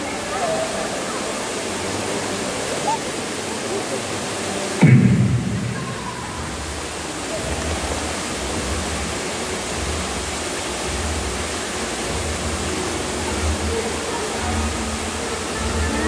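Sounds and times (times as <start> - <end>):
steady rushing noise: 4.7 - 14.2.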